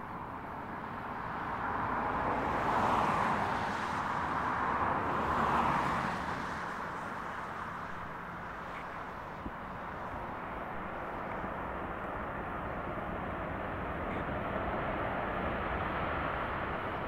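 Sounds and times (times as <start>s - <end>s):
jet engines reverse thrust: 8.7s - 17.0s.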